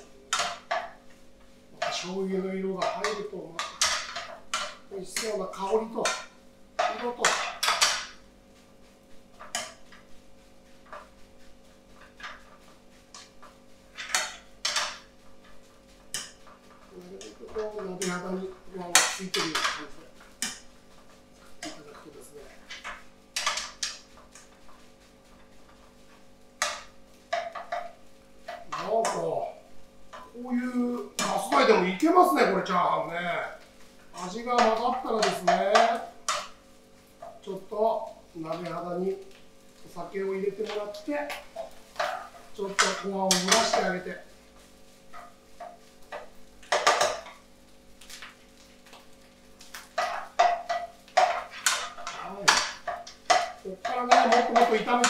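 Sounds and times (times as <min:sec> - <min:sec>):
metal ladle scraping a frying pan: 0:41.6 - 0:44.0, 0:49.7 - 0:55.0.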